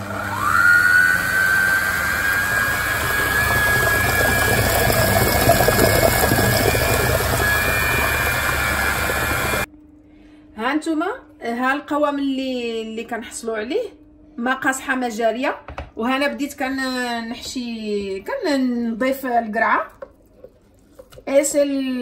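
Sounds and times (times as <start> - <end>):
food processor motor whining: 0.0 - 9.7
batter churning: 0.3 - 9.7.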